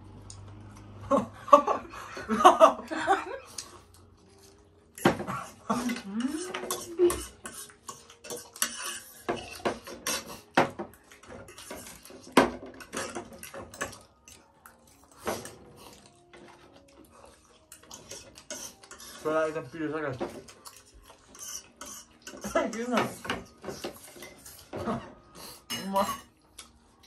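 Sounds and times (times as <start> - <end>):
spoons clinking against bowls: 4.9 - 25.0, 25.6 - 26.5.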